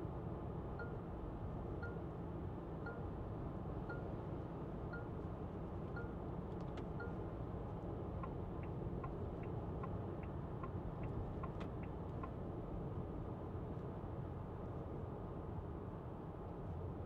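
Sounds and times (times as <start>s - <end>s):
car road and cabin noise: 0.4s - 17.0s
turn signal ticking: 8.2s - 12.4s.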